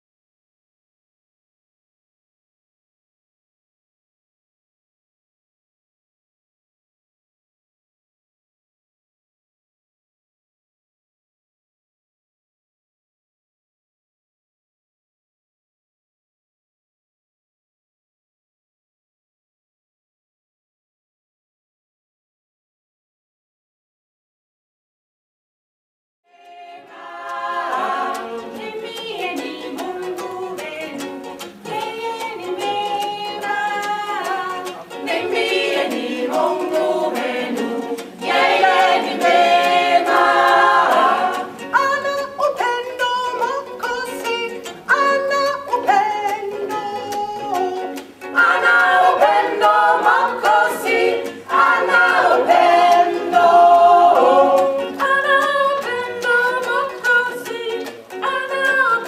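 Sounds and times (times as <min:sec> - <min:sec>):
women's choir singing: 0:26.3 - 0:41.7, 0:48.3 - 0:57.9
strummed guitar: 0:26.4 - 0:59.0.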